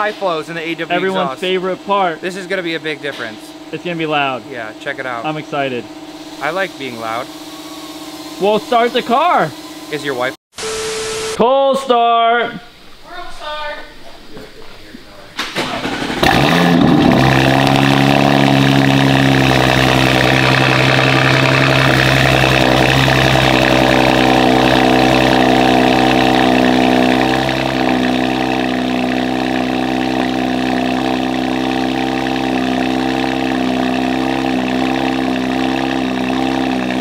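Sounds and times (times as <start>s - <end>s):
car engine idling: 0.0s - 10.4s, 14.9s - 37.0s.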